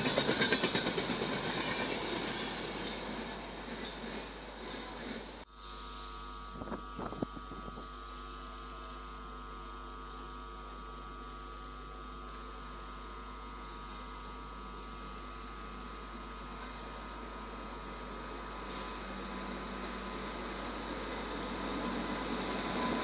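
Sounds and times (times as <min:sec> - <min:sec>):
train rumble: 0:00.0 - 0:05.5, 0:19.1 - 0:23.0
electric locomotive hum: 0:00.0 - 0:23.0.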